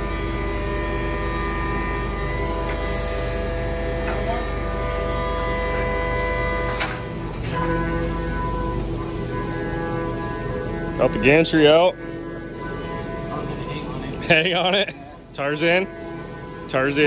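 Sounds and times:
forklift engine whining: 0.0 - 17.0.

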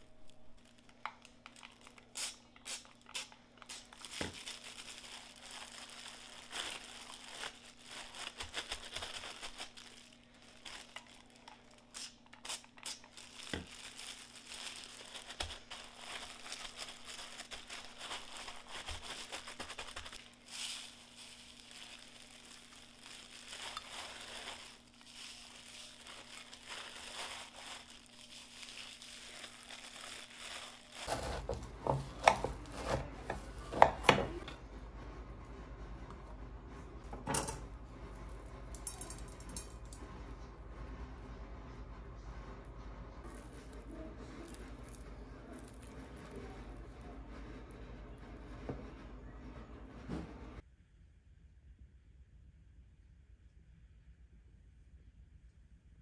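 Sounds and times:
packaging crinkling and rustling: 0.0 - 34.5, 43.3 - 46.8
steady low hum: 0.0 - 56.0.

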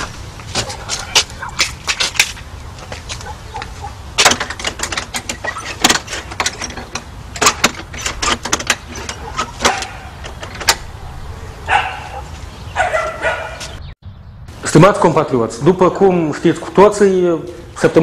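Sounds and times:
sharp knocks and clicks: 1.6 - 10.9.

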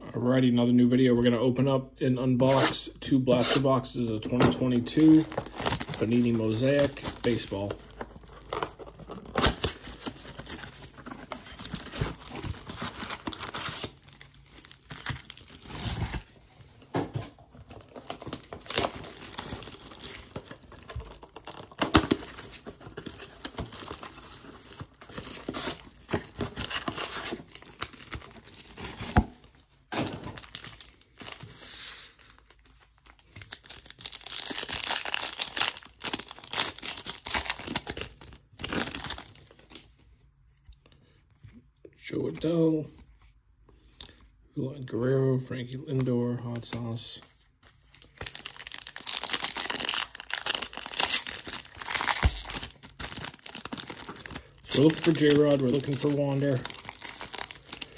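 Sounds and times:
cellophane wrapper crinkling: 4.5 - 16.4, 17.5 - 39.9, 47.4 - 57.9
foil pack ripping: 5.0 - 16.2, 33.0 - 39.3, 48.2 - 57.9.

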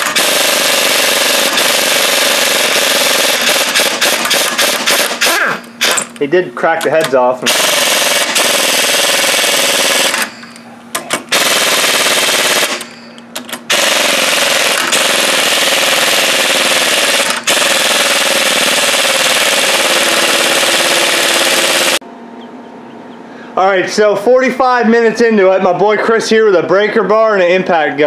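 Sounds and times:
pneumatic impact wrench hammering: 0.0 - 6.2, 6.9 - 22.0.

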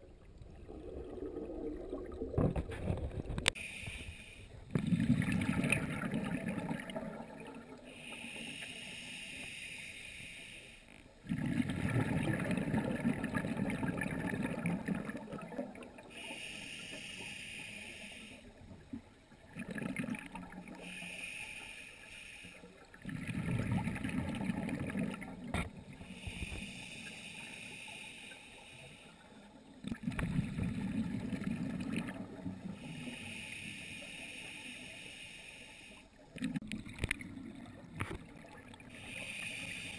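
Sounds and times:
rush of exhaled bubbles: 0.0 - 3.6, 4.7 - 7.9, 11.2 - 16.1, 19.4 - 20.9, 22.8 - 26.6, 29.8 - 32.9, 36.3 - 39.2
diver breathing through regulator: 3.4 - 4.5, 7.9 - 11.0, 16.1 - 18.6, 20.8 - 22.7, 26.0 - 29.3, 32.7 - 36.1, 38.9 - 39.9.

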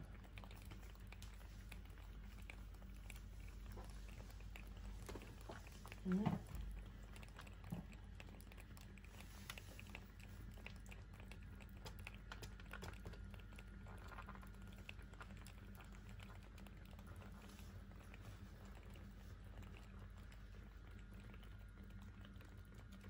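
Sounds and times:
low steady hum: 0.0 - 23.0
lobster shells clicking and tapping: 11.4 - 16.2.

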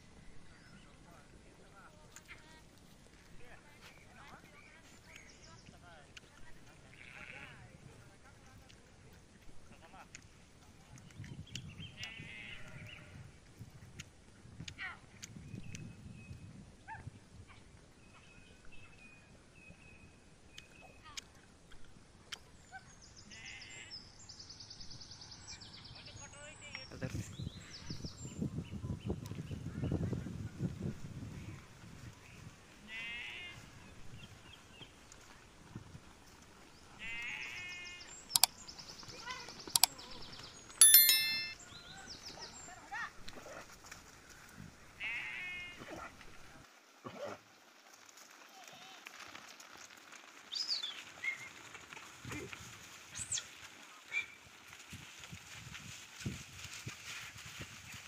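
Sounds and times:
sheep and goats bleating: 12.0 - 13.2, 23.3 - 23.9, 32.8 - 33.6, 45.0 - 45.8
loud ringing ding: 40.8 - 41.6
small clicks: 40.8 - 41.6
thin high tones: 40.8 - 41.6.

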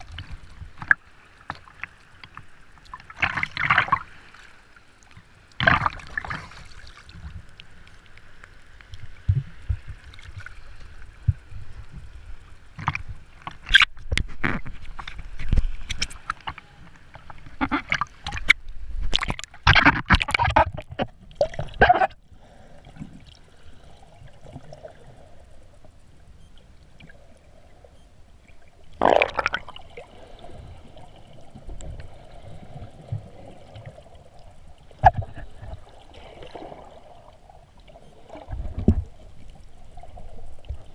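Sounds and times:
muffled underwater sound: 10.6 - 22.8
water splashing against camera: 12.7 - 22.2, 28.9 - 29.8.

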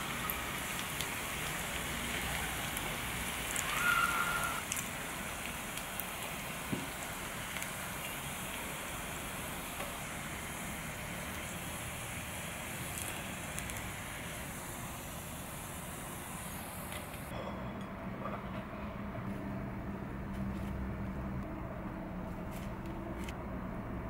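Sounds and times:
hot oil sizzling: 0.0 - 17.3
small crackles and pops: 0.2 - 8.7, 12.8 - 13.9.

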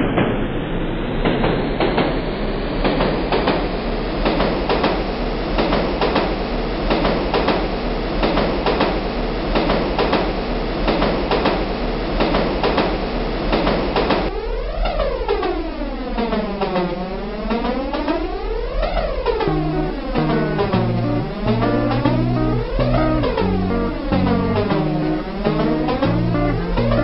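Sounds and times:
low train rumble: 0.0 - 10.9, 19.5 - 27.0.

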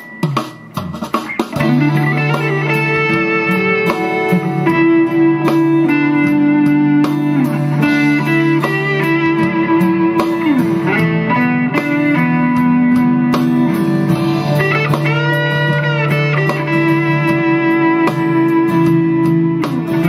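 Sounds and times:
distorted electric guitar lead: 0.0 - 20.0.

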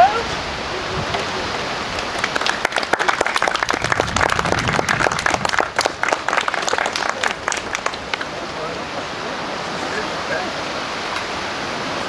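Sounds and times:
audience clapping: 1.9 - 8.3.

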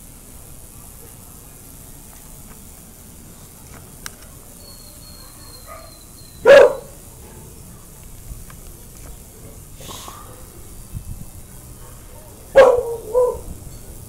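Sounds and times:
dog barking: 5.2 - 7.0, 11.8 - 13.5.

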